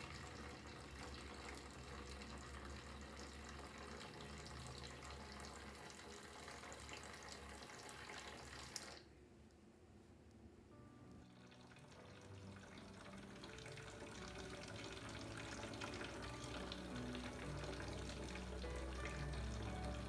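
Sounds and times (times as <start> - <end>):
water pouring into plastic jug: 0.0 - 9.1, 11.3 - 20.0
water pump humming: 0.0 - 9.1, 11.4 - 20.0.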